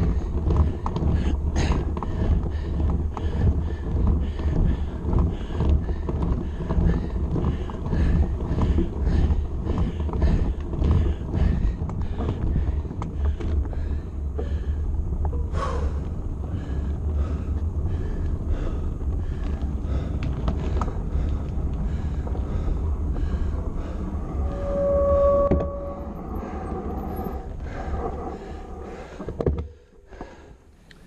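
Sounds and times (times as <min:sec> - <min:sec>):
wind rumbling on microphone: 0:00.0 - 0:30.4
rhythmic pulsing: 0:20.9 - 0:30.1
brief falling squeal: 0:24.2 - 0:27.6.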